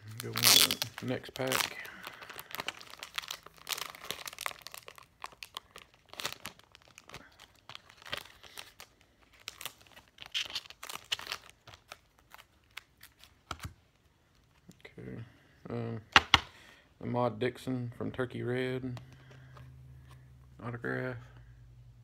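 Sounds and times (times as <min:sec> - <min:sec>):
plastic wrapping crinkling and tearing: 0:00.0 - 0:14.7
cards being handled: 0:18.9 - 0:20.3.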